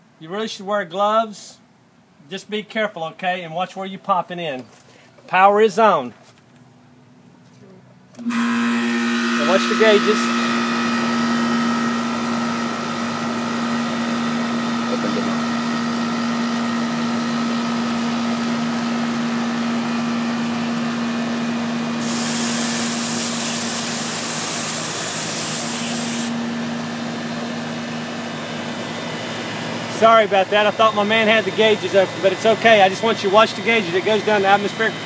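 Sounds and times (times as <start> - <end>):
compressor humming: 8.1 - 35.0
refrigerant gas hissing: 22.0 - 26.4.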